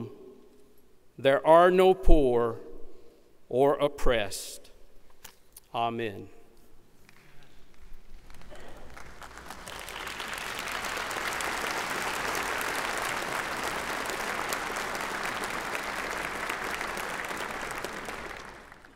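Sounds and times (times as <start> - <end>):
crowd applauding: 7.1 - 18.9.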